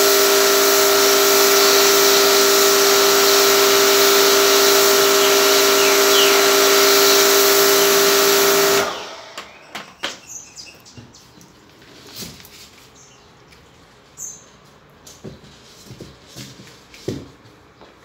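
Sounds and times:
water jet hissing: 0:00.0 - 0:09.4
pressure washer motor hum: 0:00.0 - 0:10.0.

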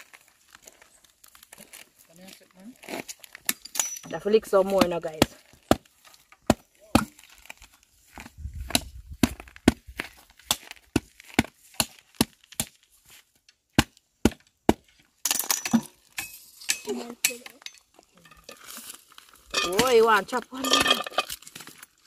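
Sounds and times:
machete chopping coconut husk: 0:04.5 - 0:12.9, 0:13.7 - 0:14.9.

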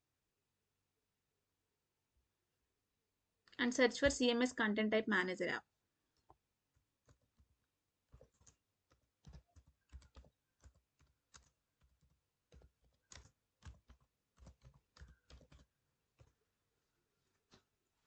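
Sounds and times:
computer keyboard clicking: 0:07.0 - 0:16.4.

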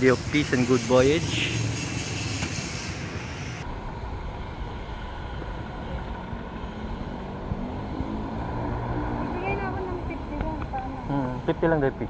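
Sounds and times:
bright hiss: 0:00.0 - 0:03.6.

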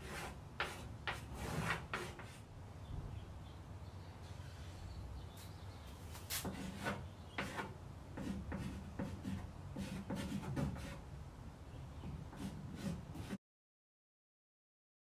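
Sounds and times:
pencil scratching on wood: 0:00.0 - 0:02.4, 0:06.4 - 0:11.0, 0:12.0 - 0:13.4.

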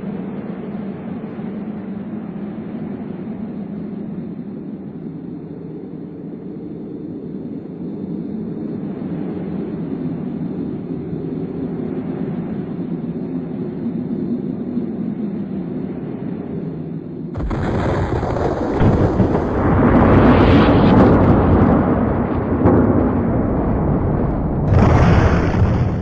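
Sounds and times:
low rumbling drone: 0:17.3 - 0:26.0.

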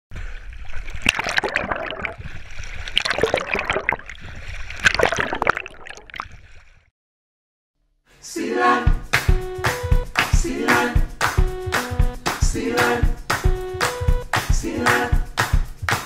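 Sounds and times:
water splashing and sloshing: 0:00.1 - 0:06.9.

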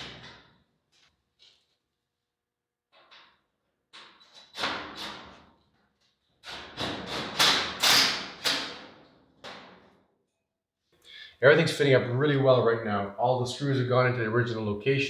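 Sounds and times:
knocks on sheet metal: 0:06.6 - 0:09.9.

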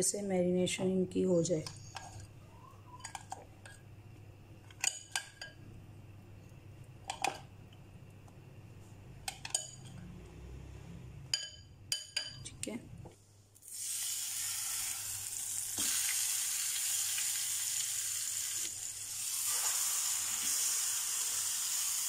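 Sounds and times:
spoon clinking against glass bowl: 0:11.4 - 0:12.4.

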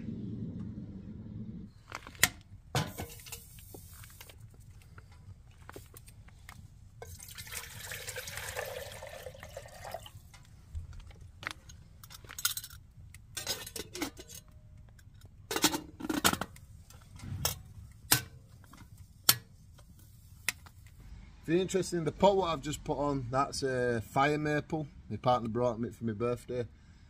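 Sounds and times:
metal lid clinking on pot: 0:02.8 - 0:03.6, 0:12.3 - 0:14.5.

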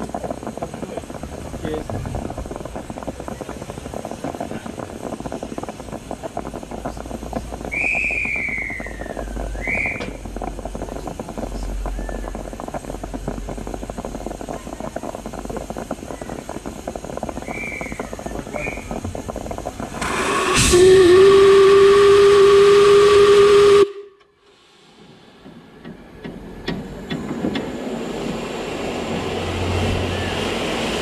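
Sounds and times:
steam train rumbling and rattling: 0:00.0 - 0:31.0
high train whistle: 0:20.2 - 0:24.3.

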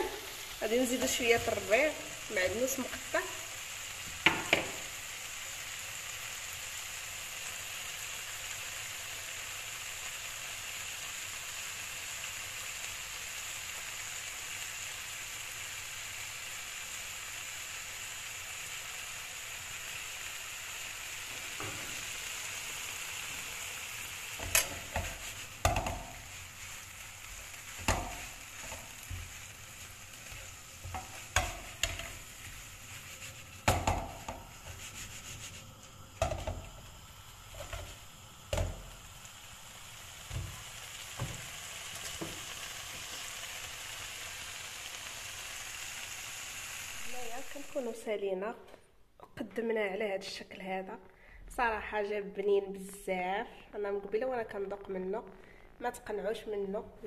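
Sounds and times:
shrimp sizzling in hot oil: 0:00.0 - 0:48.2
spatula scraping a pan: 0:24.4 - 0:36.7.

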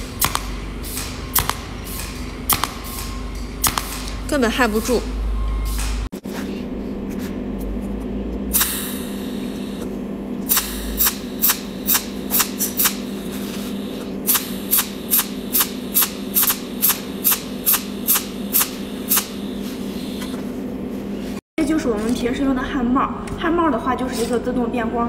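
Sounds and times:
spot welder cracking: 0:00.0 - 0:04.3, 0:10.5 - 0:13.1, 0:14.3 - 0:19.4
steady hum: 0:00.0 - 0:25.0.

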